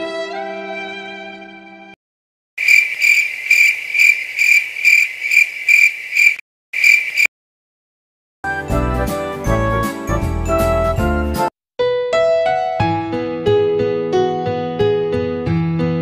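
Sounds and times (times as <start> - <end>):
cricket chirping sound effect: 2.6 - 7.3
background music: 8.5 - 16.0.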